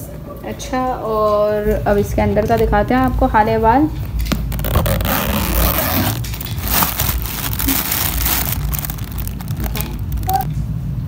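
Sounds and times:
plastic packing crinkling: 4.0s - 10.5s
zipper pulled open: 4.0s - 10.5s.

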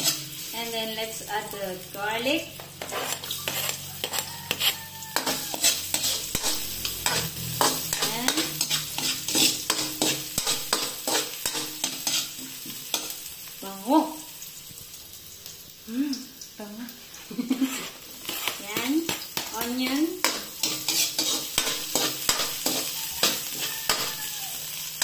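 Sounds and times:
metal ladle scraping wok: 0.0s - 0.5s, 2.5s - 13.2s, 17.1s - 25.0s
sizzling in hot oil: 0.0s - 25.0s.

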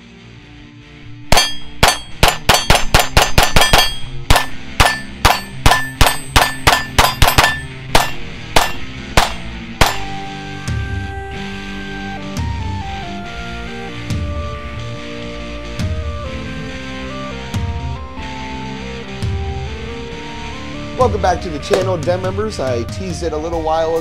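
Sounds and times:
pistol shots: 1.3s - 10.2s
metallic clang of steel targets: 1.3s - 10.3s.

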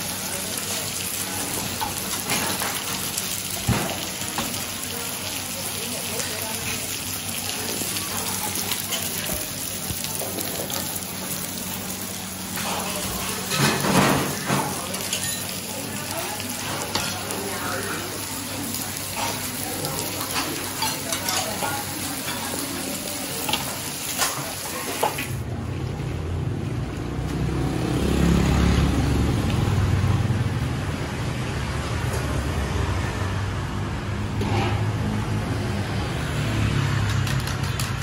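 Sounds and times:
batter sizzling in pans: 0.0s - 25.4s
metal utensils clinking: 12.6s - 15.7s, 19.0s - 22.8s.

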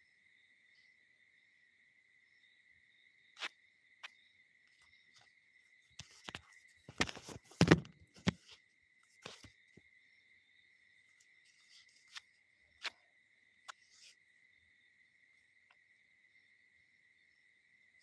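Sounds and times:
phone handling knocks and rubbing: 6.0s - 8.6s.

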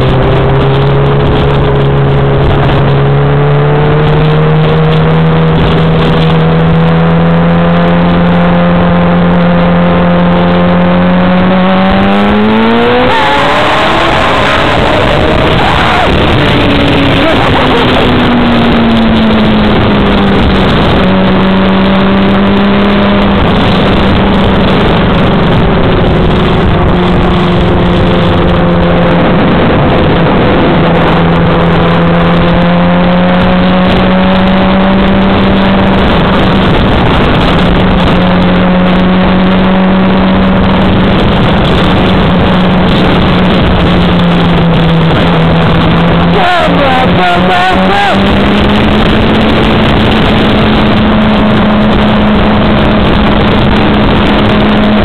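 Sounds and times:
motorcycle engine: 0.0s - 55.0s
wind rush on microphone: 0.0s - 55.0s.

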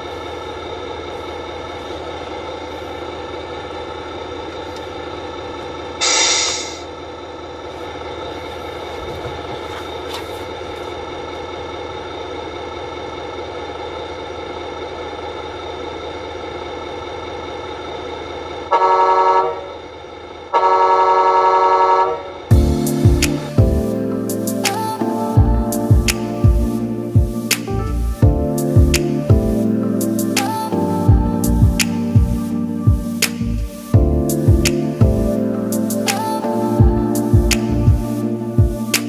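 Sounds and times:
truck engine idling through speaker: 0.0s - 39.0s
air hiss: 6.0s - 6.9s
horn blasts: 18.7s - 19.8s, 20.5s - 23.9s.

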